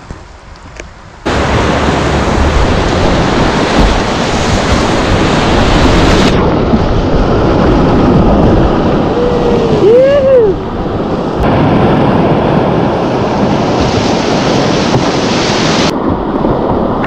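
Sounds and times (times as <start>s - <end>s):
wind buffeting microphone: 0.0s - 17.0s
whitewater rapids rushing: 1.3s - 11.8s, 12.9s - 15.9s.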